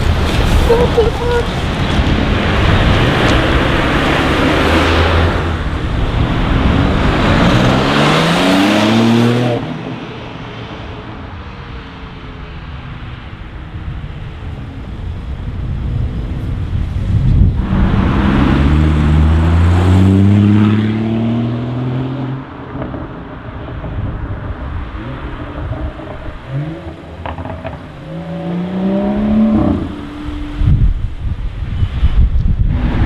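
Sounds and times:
car engines accelerating hard: 0.0s - 31.6s.

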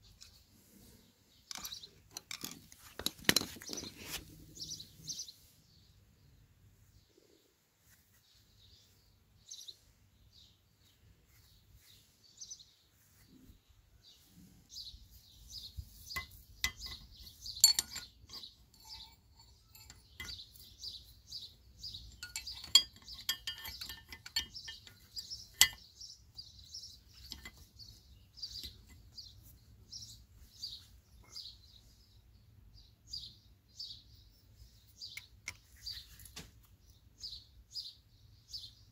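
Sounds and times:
birds chirping: 0.0s - 6.4s, 8.2s - 38.9s
metal tools clinking: 1.5s - 4.2s, 16.2s - 26.0s, 27.0s - 29.2s.

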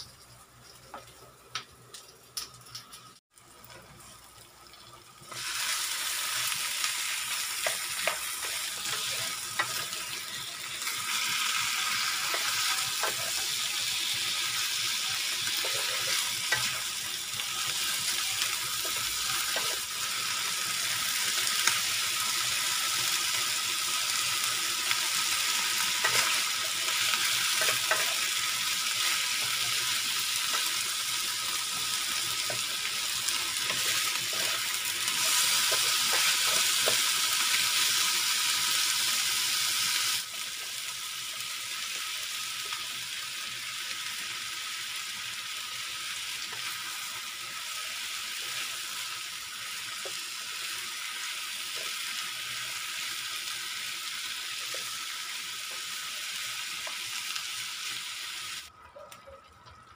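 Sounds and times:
food sizzling in a frying pan: 0.0s - 59.9s.

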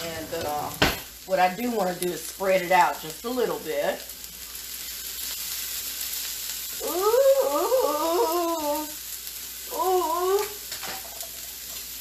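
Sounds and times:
hash browns sizzling on griddle: 0.0s - 12.0s.

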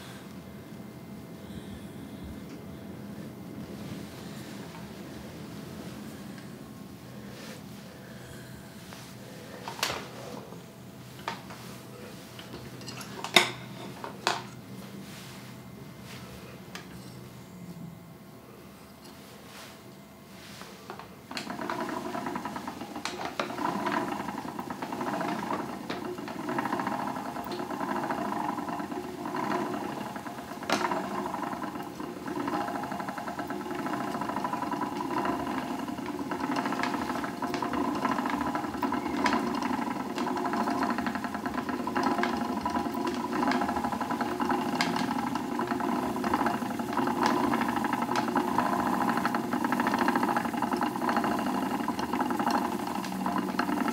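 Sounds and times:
spinning wheel whirring: 21.3s - 53.9s.

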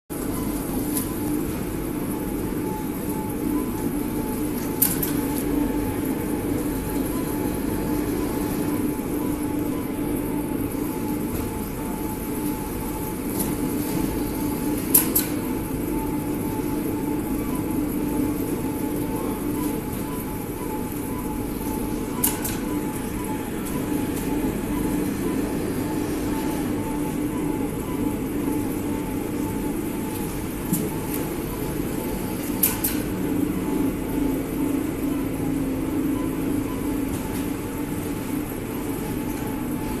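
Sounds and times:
bagging machine hum and rumble: 0.1s - 40.0s.

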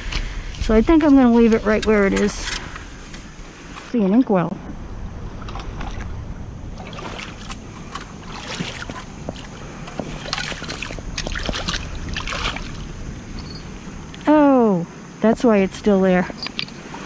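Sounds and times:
steady low rumble: 0.0s - 17.0s
light water splashing: 1.4s - 14.3s.

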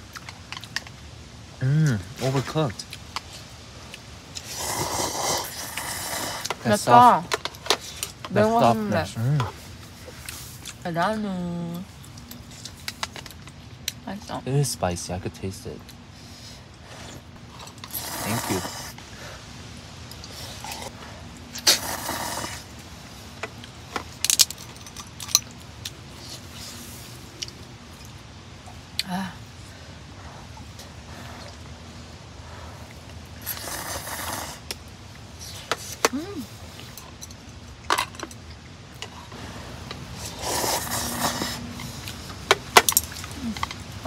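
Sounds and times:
loud slurp: 4.4s - 6.6s, 17.0s - 19.0s, 20.2s - 22.7s, 33.4s - 34.6s, 40.1s - 42.2s.

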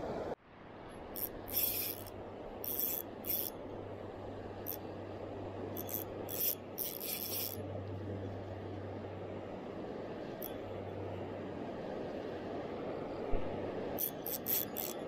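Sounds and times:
steady background hiss: 0.0s - 15.0s
fishing reel being cranked: 1.2s - 3.5s, 5.8s - 7.6s, 14.0s - 15.0s.

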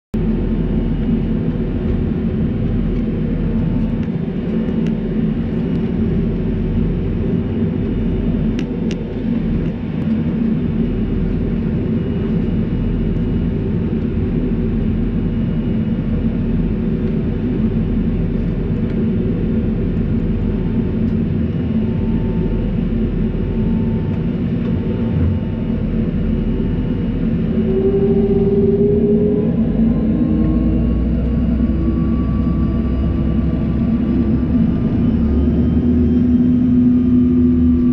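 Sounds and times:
jet airliner cabin rumble: 0.2s - 37.9s.

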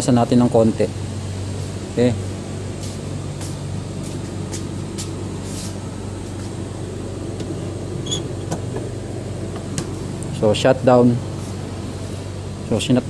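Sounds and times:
low machine hum: 0.0s - 13.0s
high squeak: 8.0s - 8.4s.

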